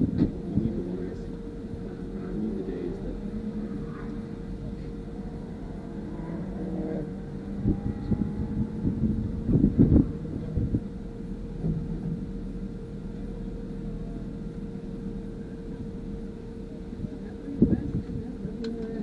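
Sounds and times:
constant hum: 0.0s - 19.0s
low rumble: 0.0s - 19.0s
low thumps: 7.0s - 16.4s.

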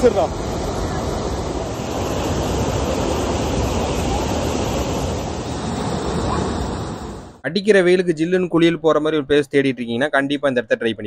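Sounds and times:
river water rushing over weir: 0.0s - 7.3s.

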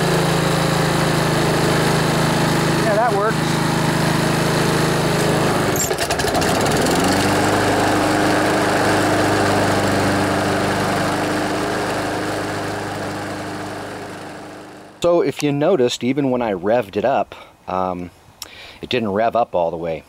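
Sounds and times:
lawnmower engine running: 0.0s - 15.0s.

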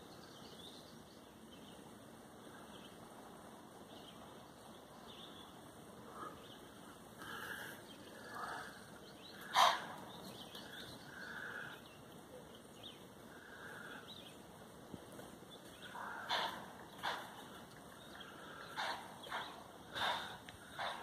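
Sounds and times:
faint bird calls: 3.9s - 14.5s, 15.5s - 21.0s.

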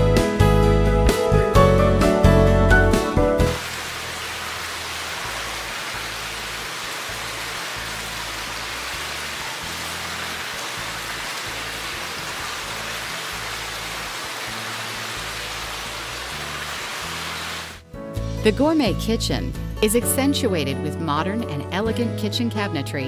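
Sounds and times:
background music bass line: 0.0s - 4.1s
waterfall rushing into pool: 3.4s - 17.8s.

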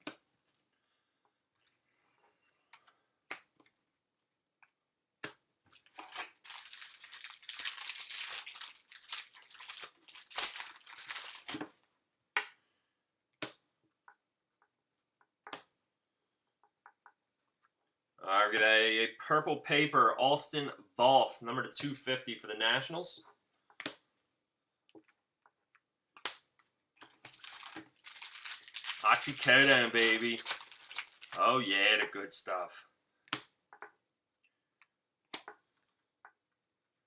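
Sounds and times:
foil wrapper tearing and crinkling: 5.7s - 11.6s, 27.2s - 31.4s.

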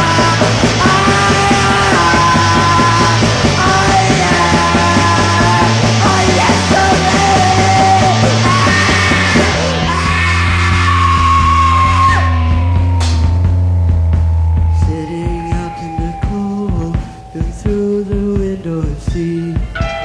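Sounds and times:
rock band playing: 0.0s - 20.0s.

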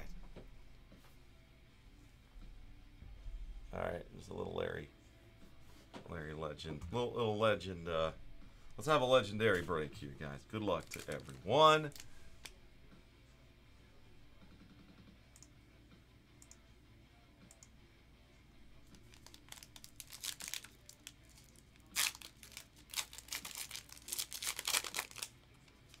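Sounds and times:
foil wrapper tearing and crinkling: 10.8s - 12.5s, 18.9s - 26.0s.

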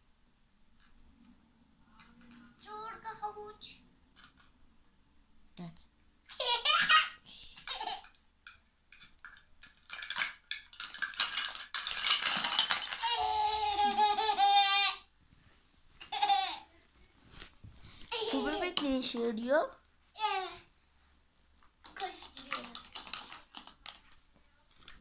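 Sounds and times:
girl laughing: 13.1s - 15.0s, 18.1s - 18.7s
plastic toy food clicks: 21.8s - 24.0s.

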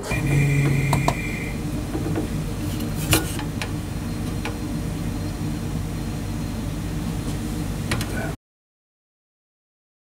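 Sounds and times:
gas boiler humming: 0.0s - 8.4s.

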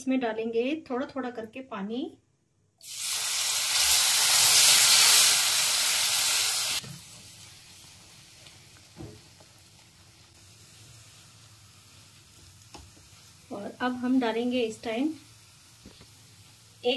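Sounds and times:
water hissing in hot fat: 2.8s - 13.6s, 14.6s - 16.9s.

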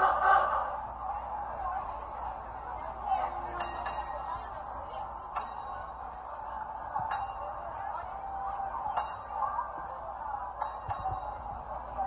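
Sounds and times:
crowd chatter: 0.0s - 12.0s
sharp metallic clinks: 3.6s - 4.4s, 5.3s - 5.9s, 10.6s - 11.4s.

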